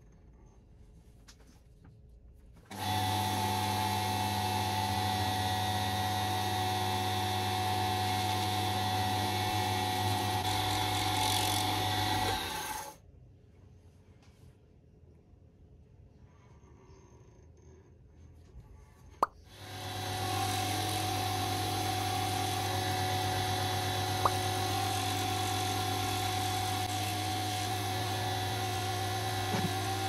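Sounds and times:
lathe motor humming and whining: 0:02.7 - 0:12.9, 0:19.5 - 0:30.0.

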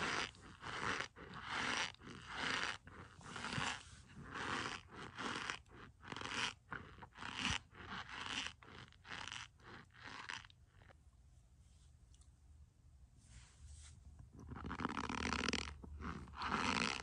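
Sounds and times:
stick crunching in powdered starch: 0:00.0 - 0:10.5.

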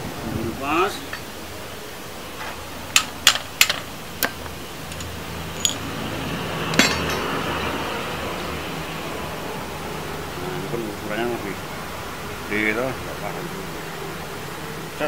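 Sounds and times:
metal tools clinking on tile floor: 0:04.9 - 0:06.0, 0:06.7 - 0:07.5.

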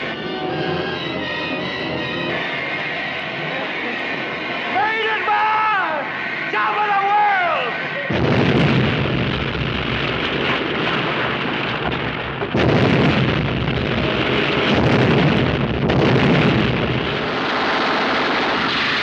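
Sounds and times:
explosion blasts: 0:08.1 - 0:19.0
explosion rumble: 0:08.1 - 0:19.0.

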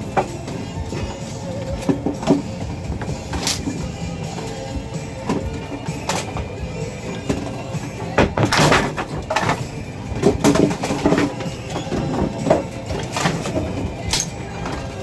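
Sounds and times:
bowling pins clattering: 0:00.0 - 0:15.0.

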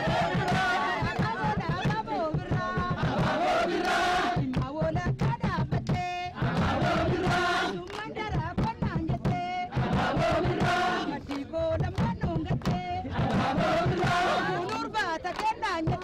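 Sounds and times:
group singing and chanting: 0:00.0 - 0:16.0
rhythmic hand-clapping: 0:00.0 - 0:16.0.

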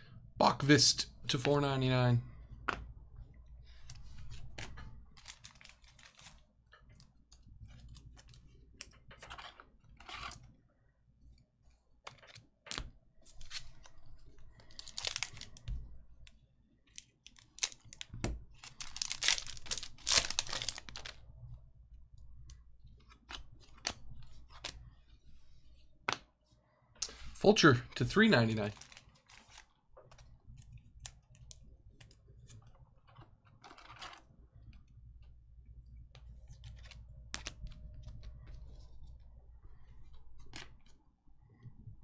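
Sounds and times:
wrappers crinkling: 0:05.2 - 0:06.5, 0:14.6 - 0:15.6, 0:17.2 - 0:21.2, 0:28.2 - 0:29.7
card packs tearing open: 0:14.7 - 0:15.6, 0:17.4 - 0:21.2, 0:28.5 - 0:29.6.

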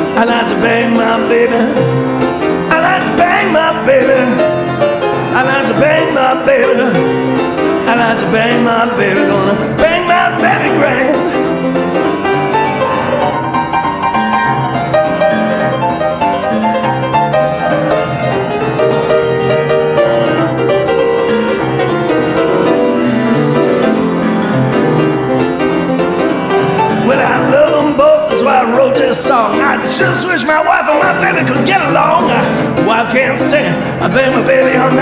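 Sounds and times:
person singing: 0:00.0 - 0:11.7, 0:26.8 - 0:35.0
blues piano solo: 0:00.0 - 0:35.0.

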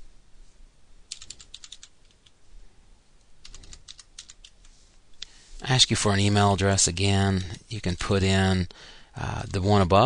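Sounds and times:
keyboard typing: 0:01.1 - 0:02.4, 0:03.4 - 0:04.8.

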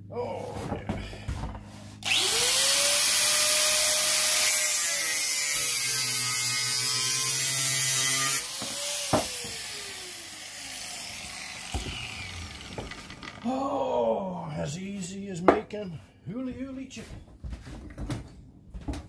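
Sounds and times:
angle grinder grinding steel: 0:02.0 - 0:13.6.

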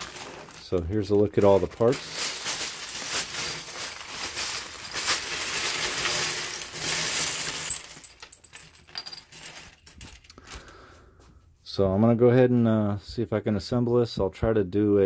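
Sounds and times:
plastic pieces clattering onto table: 0:00.0 - 0:10.6.

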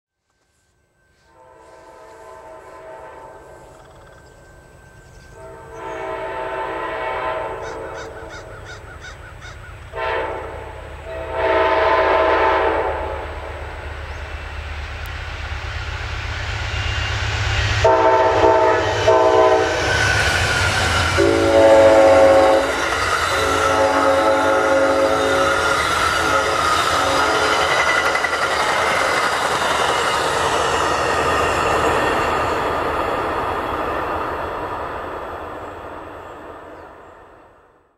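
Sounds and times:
train rumbling: 0:00.3 - 0:37.9
train horn blasts: 0:01.1 - 0:03.8, 0:05.2 - 0:08.3, 0:09.9 - 0:13.9, 0:17.8 - 0:28.2.

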